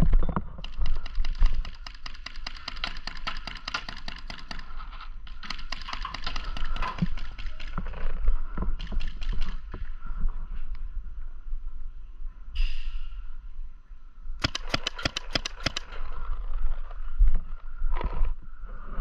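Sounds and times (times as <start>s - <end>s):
paintball markers firing: 0.6s - 8.0s, 14.4s - 16.1s.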